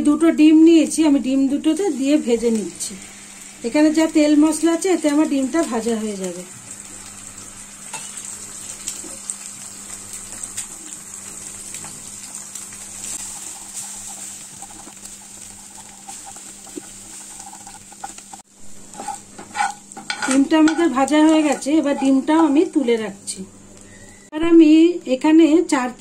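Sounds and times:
eggs sizzling in oil: 0:00.0 - 0:24.3
spatula stirring in pan: 0:13.0 - 0:22.9.

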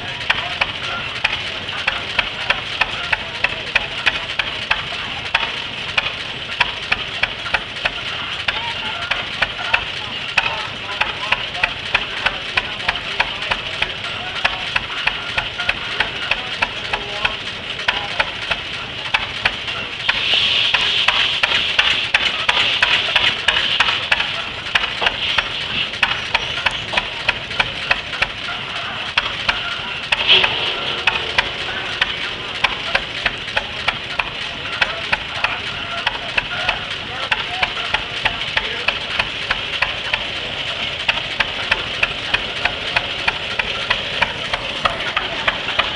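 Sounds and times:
engine exhaust popping: 0:00.0 - 0:45.9
hiss: 0:20.0 - 0:24.0.

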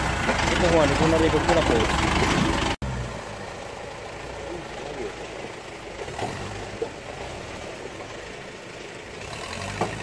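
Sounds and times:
engine idling: 0:00.0 - 0:02.8.

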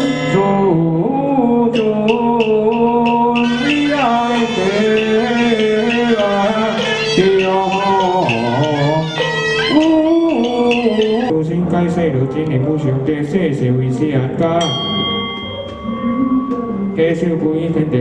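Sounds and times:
ritual melody of long notes: 0:00.0 - 0:11.3, 0:14.6 - 0:18.0.

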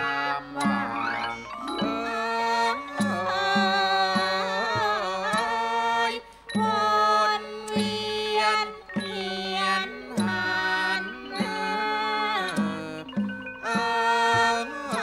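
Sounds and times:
wavering gliding lead melody: 0:00.0 - 0:04.6.

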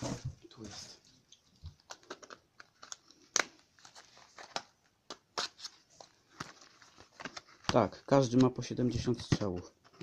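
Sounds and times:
packaging crinkling and clicking: 0:01.7 - 0:08.7.

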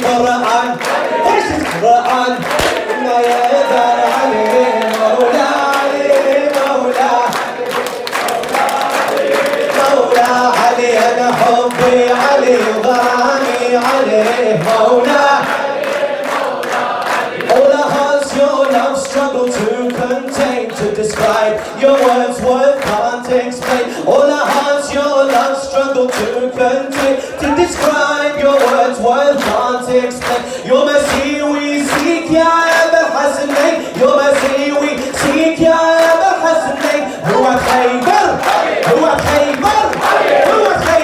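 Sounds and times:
man singing through a pa: 0:00.0 - 0:15.8, 0:17.4 - 0:41.0
voices joining in singing: 0:00.0 - 0:19.8, 0:30.4 - 0:41.0
handclaps: 0:00.0 - 0:41.0.

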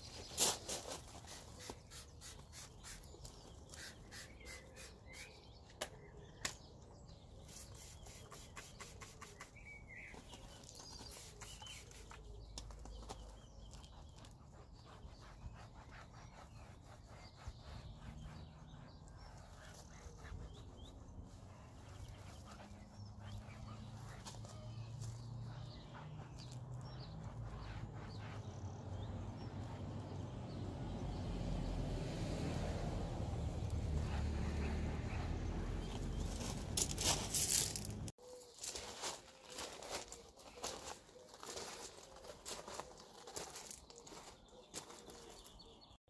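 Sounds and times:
bird chirps: 0:00.0 - 0:30.6
gravel crunching: 0:35.8 - 0:45.8.

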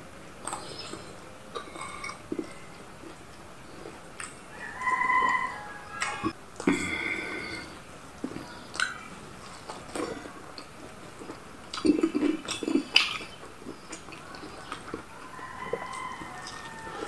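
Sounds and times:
mouth smacks while chewing: 0:03.8 - 0:04.4, 0:08.2 - 0:17.0.

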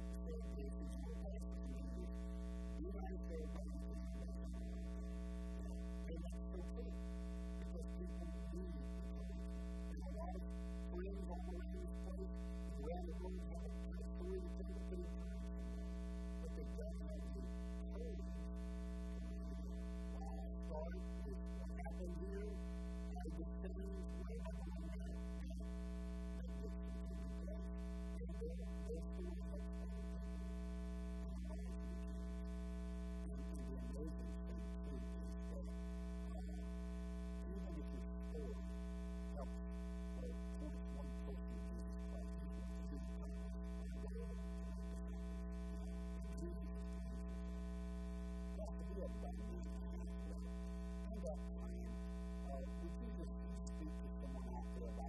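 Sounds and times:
electrical mains hum: 0:00.0 - 0:55.0
faint wavering pitched sounds: 0:16.4 - 0:18.2.

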